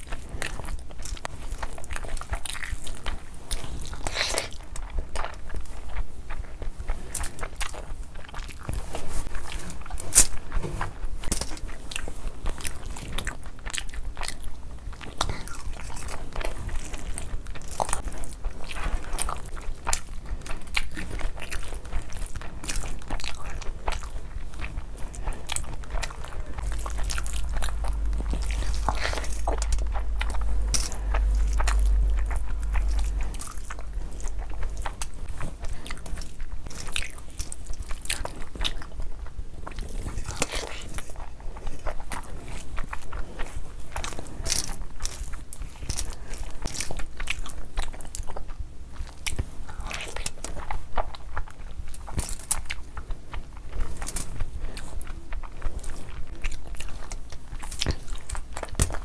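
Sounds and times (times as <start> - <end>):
chewing and mouth smacking: 0.0 - 59.0
hand squishing wet rice: 16.8 - 38.8
low rumble: 23.2 - 38.4.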